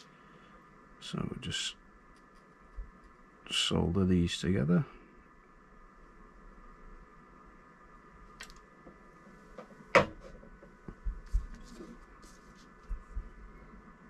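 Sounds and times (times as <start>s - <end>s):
faint steady hum: 0.0s - 14.0s
handling noises on a workbench: 9.5s - 12.8s
soft bumps on a desk: 9.6s - 12.0s.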